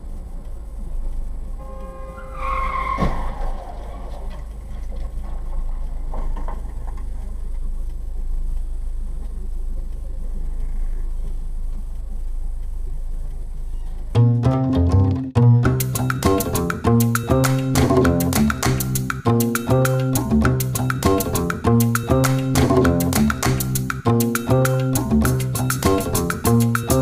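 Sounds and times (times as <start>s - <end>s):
road and engine rumble: 0.0s - 27.0s
car tyres squealing: 1.6s - 7.3s.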